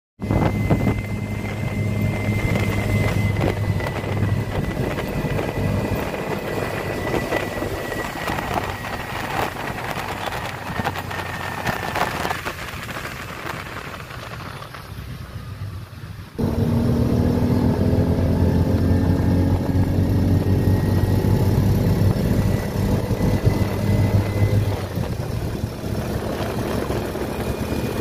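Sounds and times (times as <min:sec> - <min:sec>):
faint high whine: 0:00.2 - 0:28.0
low engine hum: 0:00.2 - 0:28.0
road and wind noise: 0:00.2 - 0:28.0.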